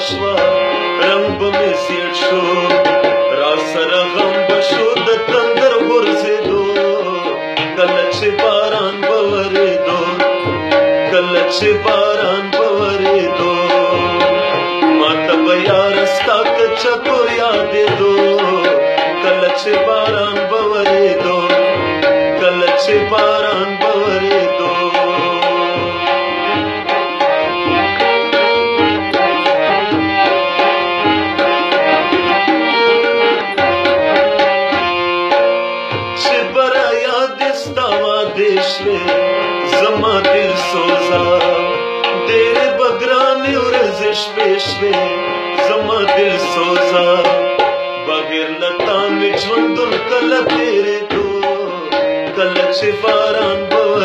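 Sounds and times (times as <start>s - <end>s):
harmonium melody: 0.0s - 54.0s
tabla rhythm: 0.0s - 54.0s.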